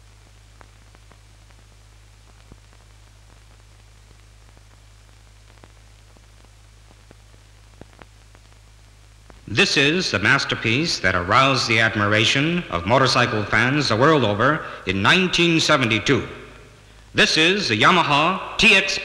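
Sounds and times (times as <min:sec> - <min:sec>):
faint clicks and pops: 0:00.0 - 0:09.5
steady hiss: 0:00.0 - 0:19.0.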